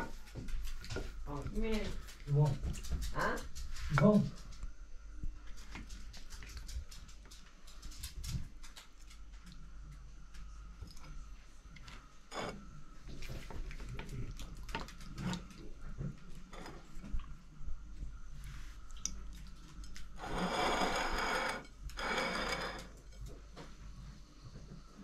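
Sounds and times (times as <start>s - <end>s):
spoon scraping dish: 12.3s - 12.6s, 20.2s - 23.3s.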